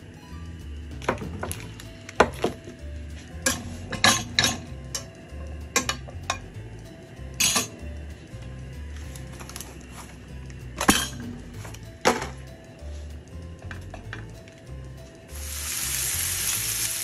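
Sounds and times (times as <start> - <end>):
music with bass line: 0.0 - 17.0
knife and pan clinking: 3.4 - 5.1, 7.4 - 7.8.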